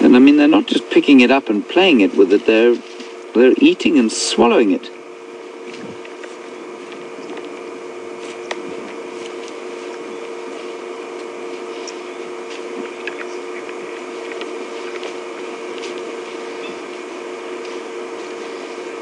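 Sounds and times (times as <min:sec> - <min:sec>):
steady low hum: 0:00.0 - 0:19.0
animal chewing shell crunching: 0:08.2 - 0:18.5.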